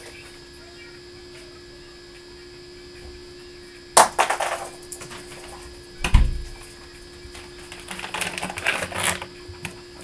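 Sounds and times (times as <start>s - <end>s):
heavy door thump: 6.0s - 6.6s.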